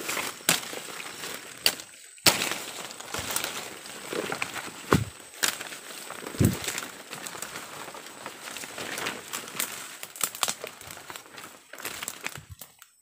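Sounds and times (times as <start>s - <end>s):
branches brushing and crackling: 0.0s - 13.0s
footsteps crunching through dry leaves: 0.0s - 13.0s
heavy thump: 4.9s - 5.1s, 6.4s - 6.7s.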